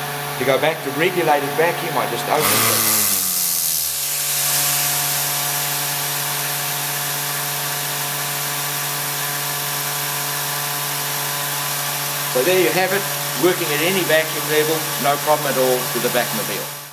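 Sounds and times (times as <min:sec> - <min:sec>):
vacuum pump humming: 0:02.3 - 0:16.0
air hissing through valve: 0:02.4 - 0:06.7.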